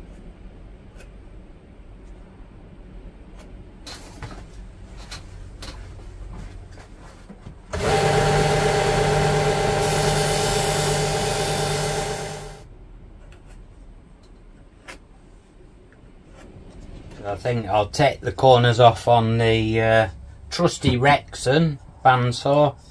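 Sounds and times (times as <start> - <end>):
electric shop tool whirring: 7.7 - 12.6.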